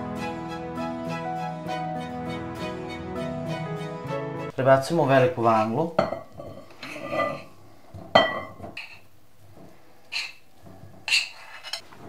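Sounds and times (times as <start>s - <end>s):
utensil scraping ceramic plate: 6.4s - 7.5s, 8.2s - 9.1s, 10.1s - 10.4s, 11.0s - 11.9s.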